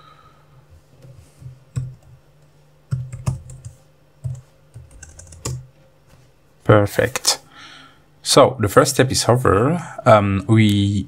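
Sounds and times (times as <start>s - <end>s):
computer keyboard typing: 1.7s - 2.2s, 2.9s - 5.7s.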